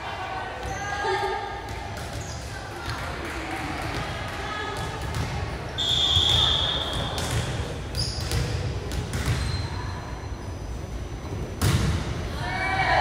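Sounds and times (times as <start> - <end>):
ball bouncing on gym floor: 1.7 - 5.5, 6.2 - 9.6
referee's whistle blast: 5.8 - 7.0.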